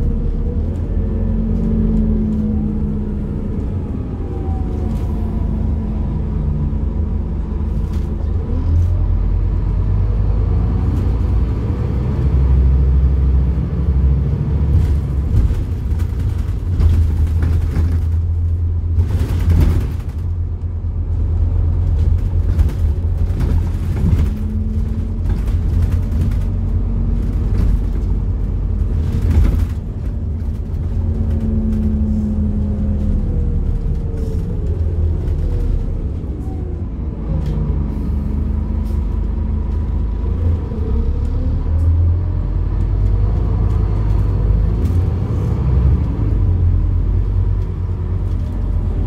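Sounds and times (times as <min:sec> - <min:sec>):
bus engine rumble: 0:00.0 - 0:49.0
knocks and rattles: 0:14.8 - 0:20.4.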